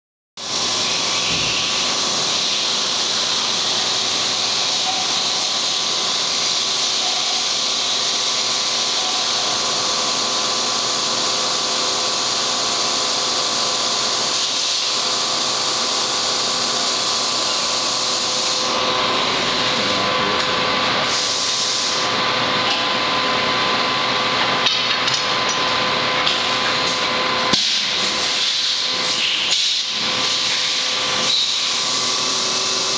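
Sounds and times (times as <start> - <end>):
coolant spray hiss: 0.4 - 18.7, 21.1 - 22.0.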